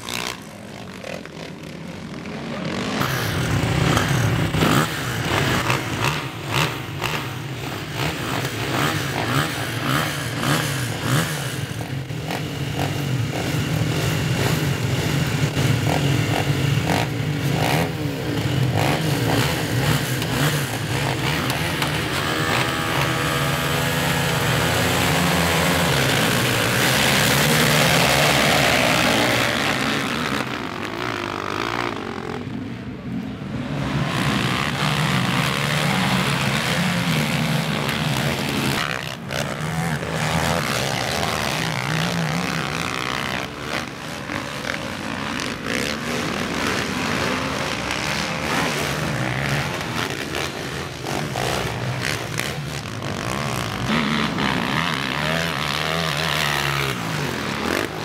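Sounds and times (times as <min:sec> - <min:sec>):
racing quad engines revving: 0:00.0 - 0:58.0.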